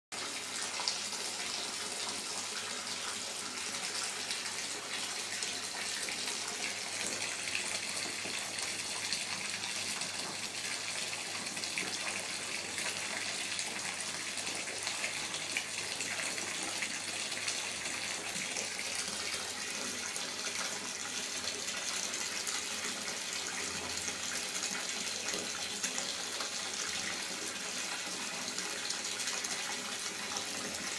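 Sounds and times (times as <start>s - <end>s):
bath tap running: 0.2s - 30.9s.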